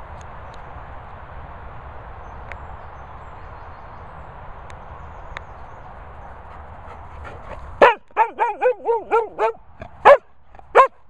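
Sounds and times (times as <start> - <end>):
dog barking loudly: 7.2 - 11.0
dog yelping: 7.8 - 10.2.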